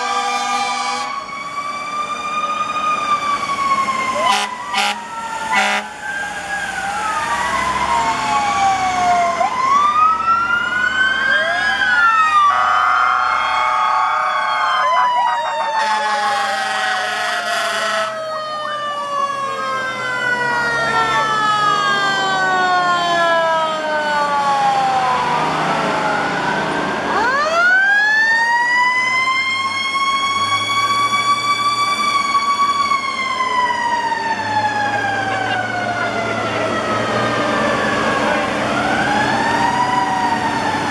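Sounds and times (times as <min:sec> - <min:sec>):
fire truck sirens wailing: 0:00.0 - 0:40.9
horn blasts: 0:04.2 - 0:05.9, 0:15.8 - 0:18.2.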